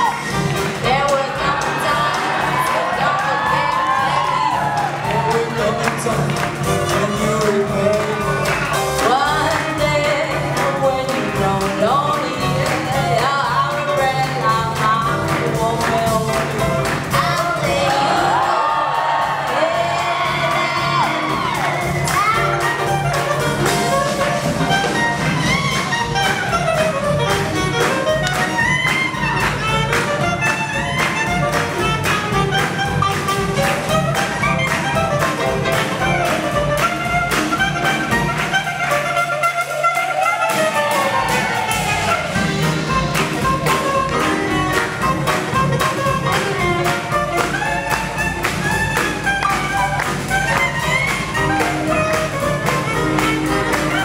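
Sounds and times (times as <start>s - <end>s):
swing jazz band playing: 0.0s - 54.0s.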